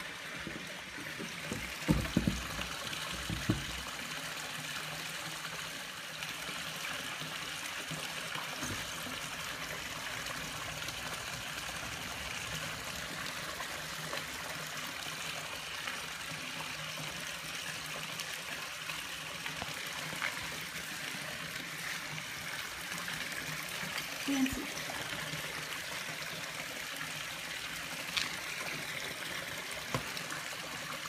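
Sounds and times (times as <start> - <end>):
running water trickling: 0.0 - 31.0
knocks: 0.5 - 3.9.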